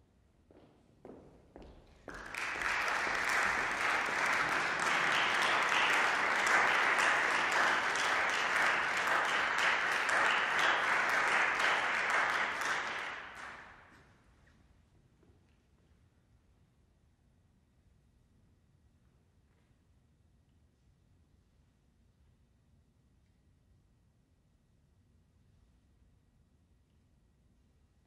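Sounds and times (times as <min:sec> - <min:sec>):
audience applauding: 0:02.1 - 0:14.0.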